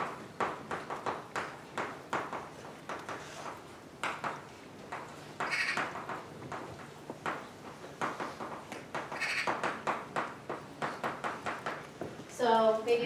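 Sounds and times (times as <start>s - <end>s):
chalk on blackboard: 2.9s - 3.6s.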